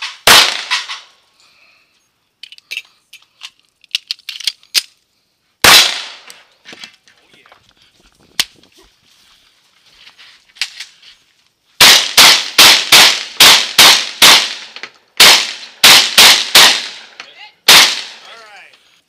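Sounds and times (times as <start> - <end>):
rifle shots echoing: 0.0 - 1.0, 5.6 - 6.4, 11.8 - 18.4.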